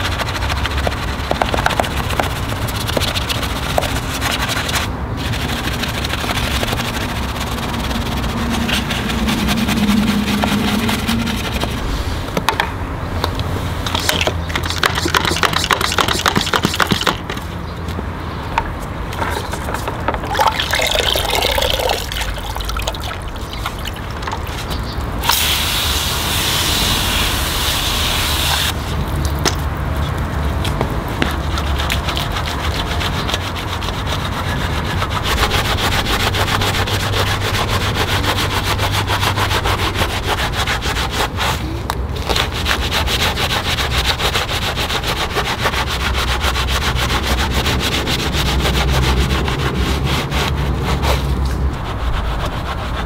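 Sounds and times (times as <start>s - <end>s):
water spraying on car: 0.0s - 12.3s, 13.6s - 17.3s, 20.2s - 41.7s, 42.3s - 51.9s
washing tools rubbing and scraping: 0.0s - 12.6s, 13.5s - 17.6s, 18.8s - 25.6s, 28.3s - 53.0s.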